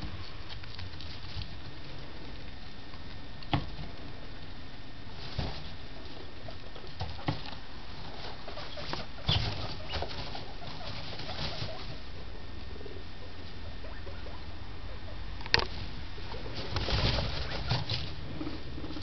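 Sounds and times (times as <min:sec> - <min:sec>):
guinea pigs rustling in hay: 0:00.0 - 0:19.0
guinea pigs cooing purrs: 0:05.1 - 0:19.0.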